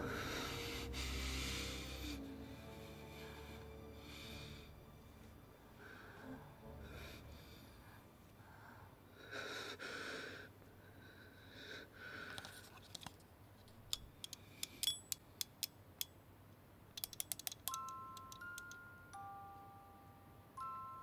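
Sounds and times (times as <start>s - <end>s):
soft breathy sounds: 0.0s - 12.8s
small mechanism clicking: 12.8s - 16.2s, 16.9s - 18.8s
music box melody: 17.6s - 21.0s.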